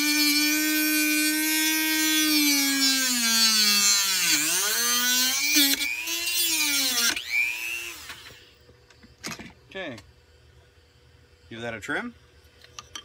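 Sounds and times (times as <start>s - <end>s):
rotary tool grinding wood: 0.0s - 8.5s.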